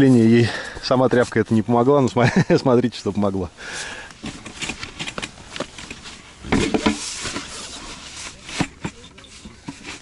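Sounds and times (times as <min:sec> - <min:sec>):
plywood scraping: 0:03.6 - 0:10.0.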